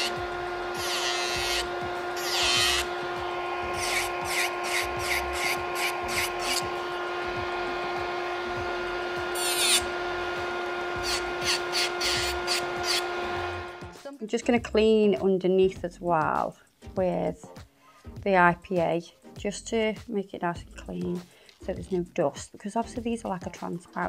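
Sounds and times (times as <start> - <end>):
electric nail file grinding: 0.0 - 14.0.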